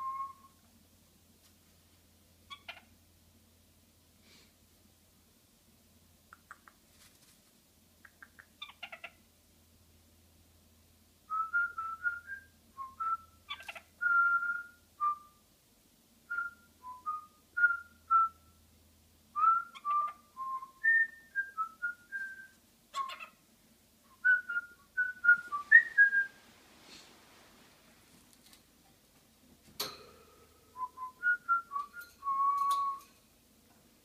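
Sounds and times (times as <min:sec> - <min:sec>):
parrot whistling: 0:19.4 - 0:23.4.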